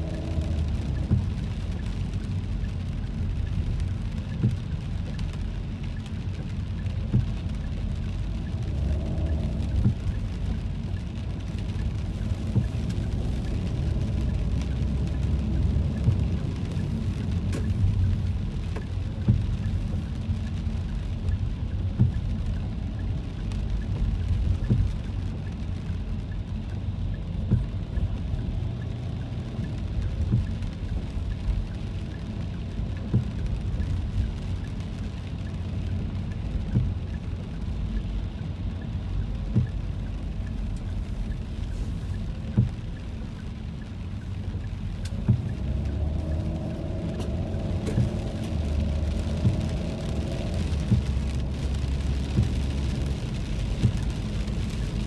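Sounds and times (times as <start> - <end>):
car driving rumble: 0.0 - 55.0
rain ticking on car: 0.0 - 55.0.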